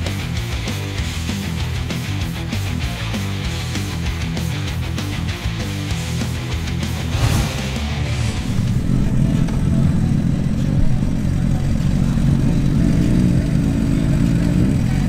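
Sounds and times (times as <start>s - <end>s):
motorcycle engines at low revs: 8.1s - 15.0s.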